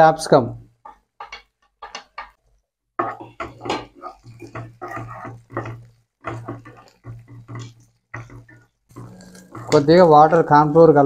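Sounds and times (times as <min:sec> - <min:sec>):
wooden spatula scraping a pan: 0:00.7 - 0:02.4, 0:03.0 - 0:11.0
vegetables sizzling in oil: 0:03.0 - 0:11.0.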